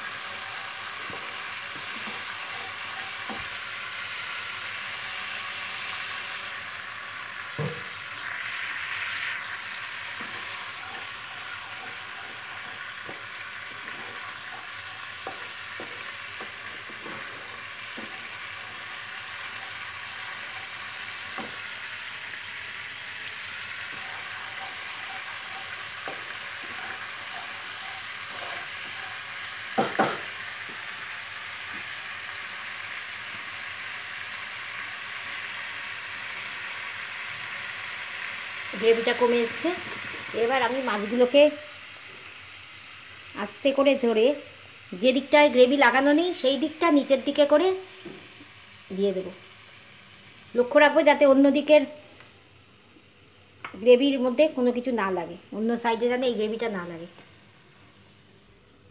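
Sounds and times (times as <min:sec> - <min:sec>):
wooden spatula scraping a pan: 0:00.0 - 0:03.6, 0:10.2 - 0:21.6, 0:23.8 - 0:30.8
gravy sizzling in a pan: 0:00.0 - 0:53.6.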